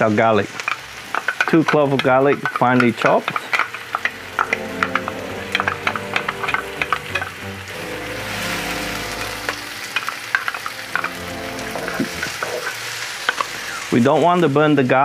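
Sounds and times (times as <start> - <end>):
onion and garlic sizzling in oil: 0.0 - 15.0
soft background music: 3.5 - 13.3.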